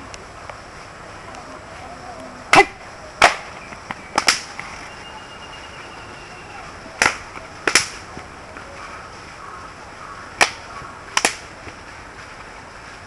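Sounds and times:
hands slapping body: 10.4 - 11.5.

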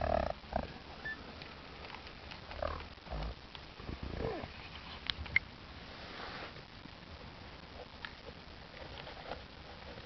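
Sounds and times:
alpacas humming: 0.0 - 1.3, 2.4 - 3.4, 4.0 - 4.6
alpacas eating from plastic bowl: 0.6 - 2.9.

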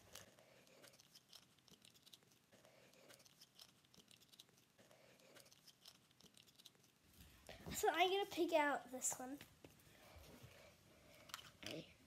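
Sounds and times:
clicks and rustles of toys: 11.1 - 12.0.

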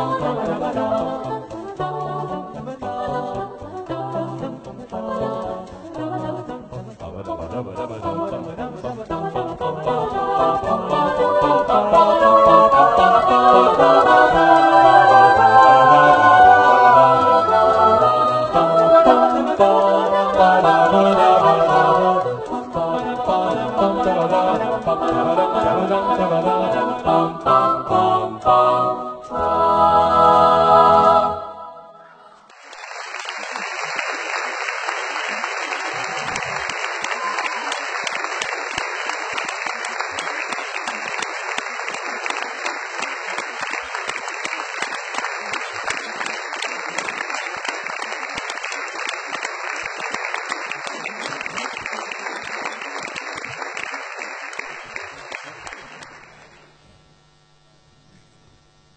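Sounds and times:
choir singing held chord: 0.0 - 32.5
audience applause: 32.5 - 56.7.

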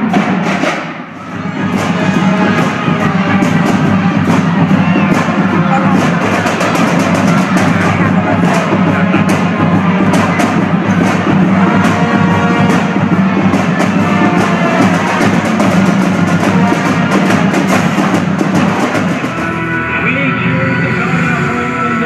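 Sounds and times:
music with steady drum beat: 0.0 - 20.0.

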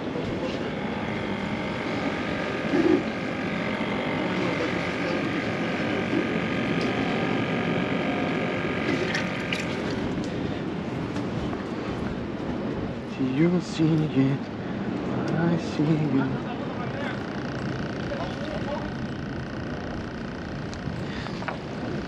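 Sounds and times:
high whining tones: 0.0 - 11.0, 16.6 - 22.0
engine drone: 0.0 - 22.0.

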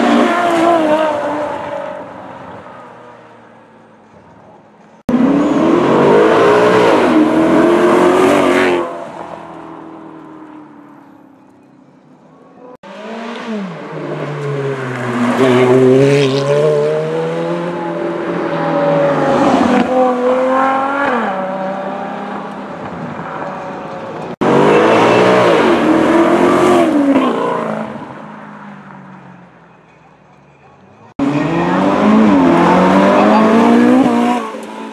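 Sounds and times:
sports car engines revving: 5.1 - 10.6, 12.8 - 28.6, 31.2 - 34.9.

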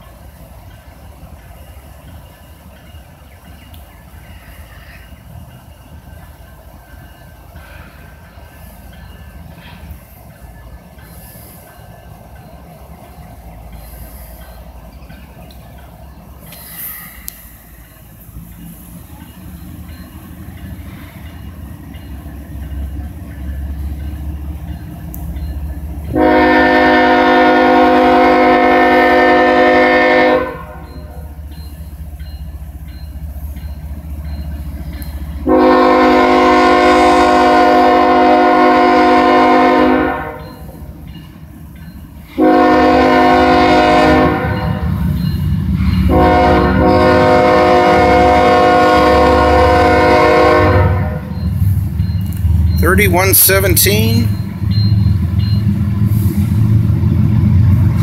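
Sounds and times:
low rumble of train: 0.0 - 58.0
locomotive air horn blasts: 26.1 - 30.8, 35.4 - 40.4, 42.4 - 44.9, 46.1 - 51.3.

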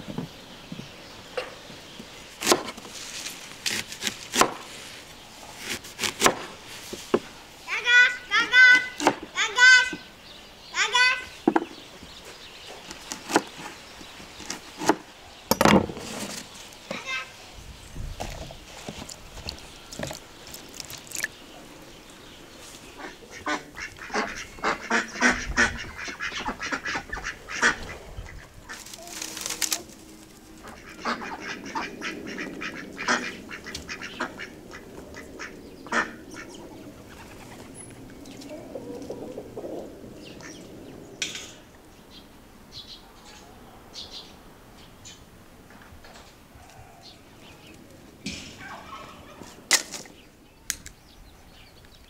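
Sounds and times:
ducks quacking: 22.9 - 29.1, 30.6 - 37.5.

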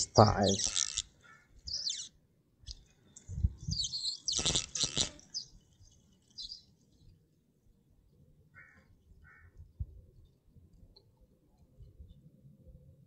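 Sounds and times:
birds chirping: 0.0 - 7.1.

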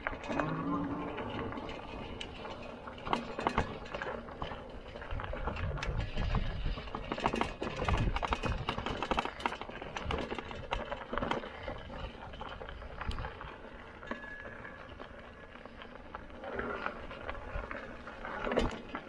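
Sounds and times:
bike rattling over rough dirt: 0.0 - 19.0.

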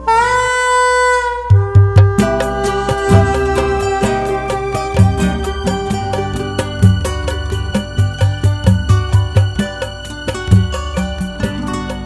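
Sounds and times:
soprano saxophone long note: 0.0 - 8.4
samba backing track: 1.4 - 12.0.

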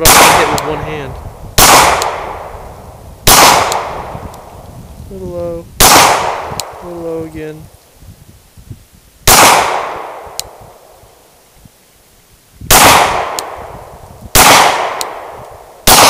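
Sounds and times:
pistol shots: 0.0 - 0.8, 1.6 - 2.5, 3.2 - 4.0, 5.8 - 6.8, 9.3 - 10.5, 12.7 - 13.7, 14.3 - 16.0.

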